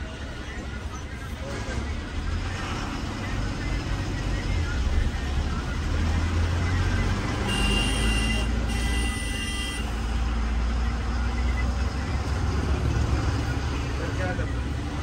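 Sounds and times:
bus engine and road rumble: 0.0 - 15.0
horn blasts: 7.4 - 10.0.

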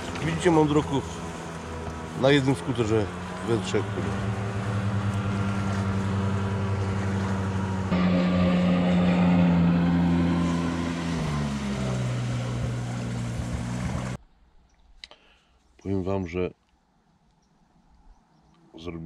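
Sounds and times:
jet ski engine running: 0.0 - 14.2.

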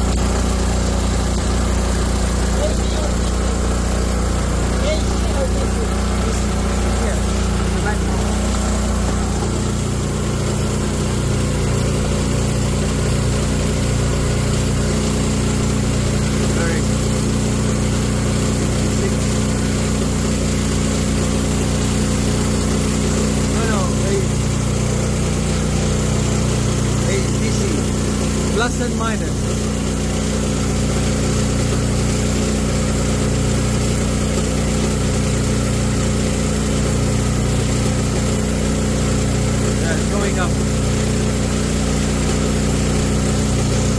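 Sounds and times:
generator engine running: 0.0 - 43.9.

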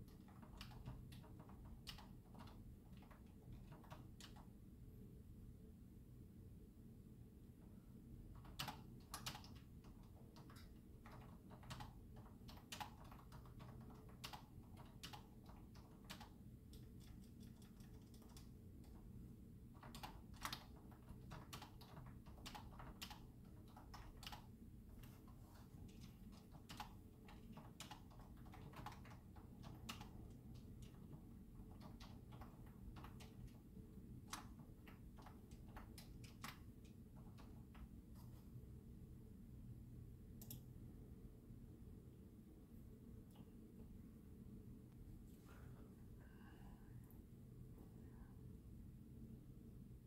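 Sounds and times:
keyboard typing: 0.0 - 4.6, 8.3 - 38.0, 40.4 - 40.7
room hum: 0.0 - 50.0.

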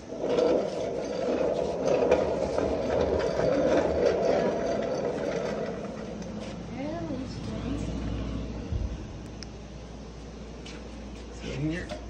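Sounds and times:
stool casters rumbling on concrete: 0.0 - 9.2.

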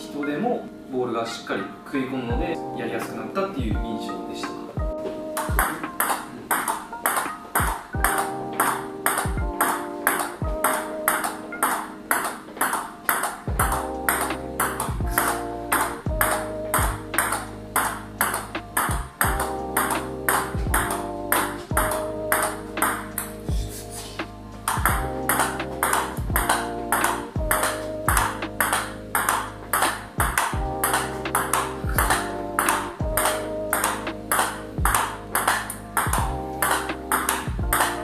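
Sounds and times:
background music with bass line: 0.0 - 38.0
table tennis ball clicking: 5.4 - 16.5, 17.2 - 23.3, 24.7 - 38.0.

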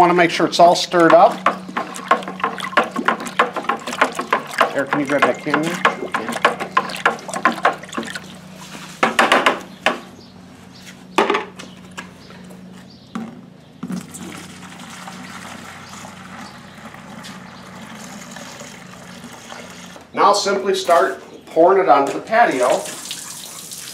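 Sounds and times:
liquid pouring into a watering can: 0.0 - 9.0, 13.9 - 20.0, 22.4 - 23.9
liquid splashing in a bucket: 0.0 - 9.2, 13.8 - 20.0, 22.4 - 23.9
knocks on a bucket: 1.0 - 8.2, 9.0 - 10.1.

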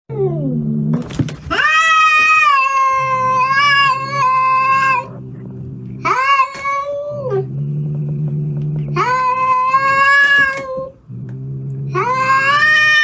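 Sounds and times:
cat growling: 0.1 - 13.0
cat yowling: 1.5 - 5.1, 11.9 - 13.0.

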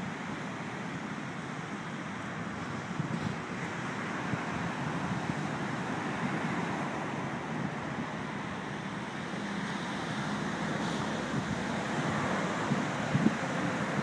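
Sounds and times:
wind buffeting microphone: 2.6 - 6.6, 11.2 - 14.0.

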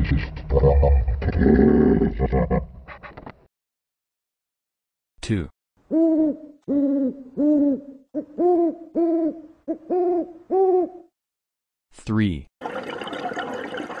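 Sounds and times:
owl hooting: 5.9 - 11.1.

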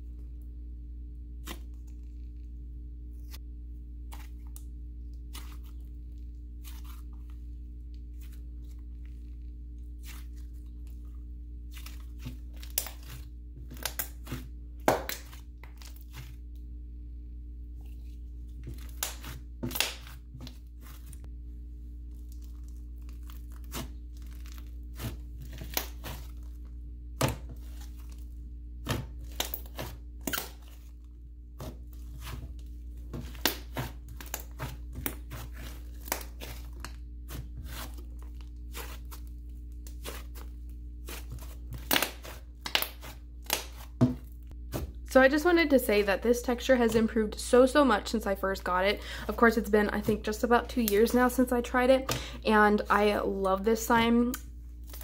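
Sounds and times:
slime crackling and squishing: 4.0 - 16.6, 17.6 - 47.1.

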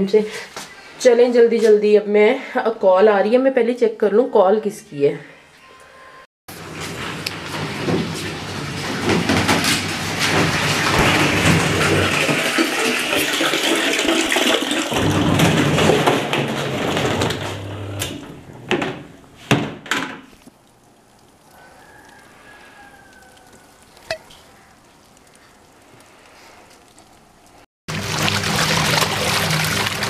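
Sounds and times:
tap water running: 6.6 - 18.9, 27.9 - 30.0.

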